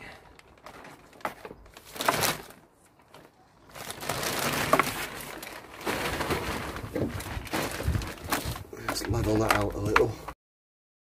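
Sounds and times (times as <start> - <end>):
soil rustling and scraping: 0.4 - 9.9.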